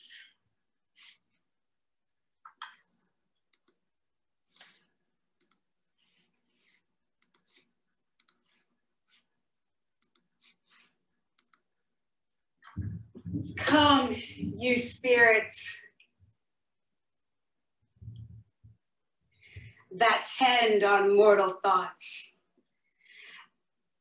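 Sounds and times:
soft puffs: 0:04.4 - 0:09.5, 0:10.1 - 0:11.1.

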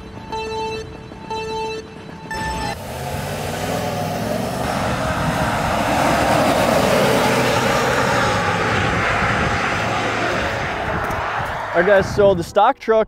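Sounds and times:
pickup truck engine accelerating: 0:02.3 - 0:12.2.

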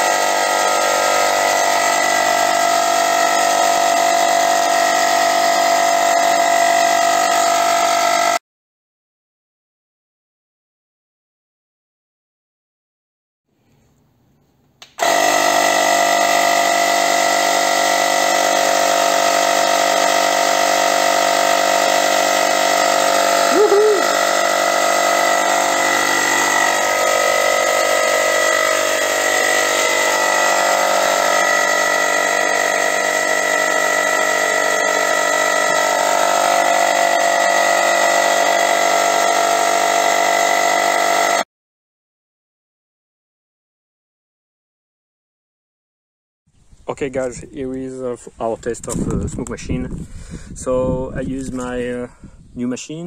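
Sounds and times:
electric air pump humming: 0:00.0 - 0:08.4, 0:14.8 - 0:41.5.

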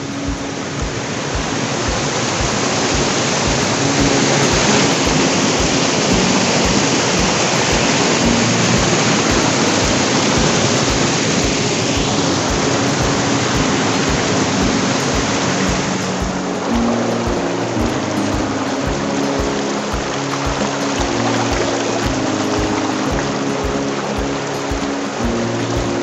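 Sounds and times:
fast-flowing river rushing: 0:00.0 - 0:26.0.

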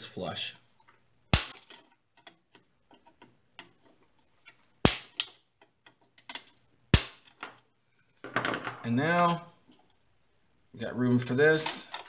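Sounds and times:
plastic clicking and rattling: 0:05.6 - 0:06.6.

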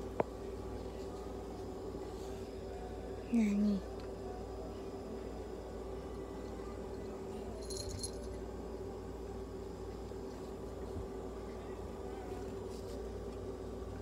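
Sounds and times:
constant hum: 0:00.0 - 0:14.0
metallic jingle: 0:07.6 - 0:08.4.

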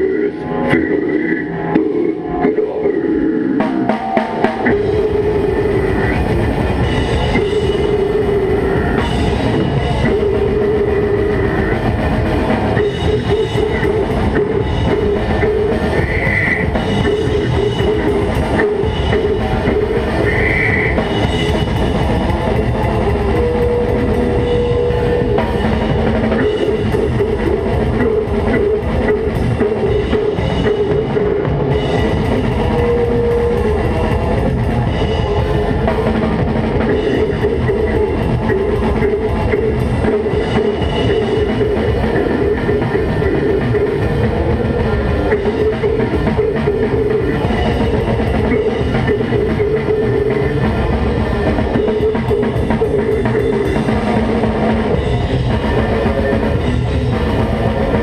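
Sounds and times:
distorted electric guitars: 0:00.0 - 0:58.0
drum kit beaten: 0:03.6 - 0:58.0.

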